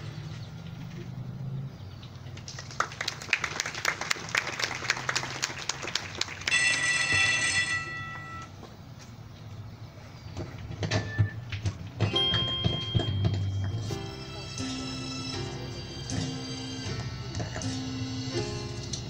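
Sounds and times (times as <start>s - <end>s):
audience clapping: 2.3s - 7.1s
ringing tone: 6.5s - 8.6s, 12.1s - 13.9s.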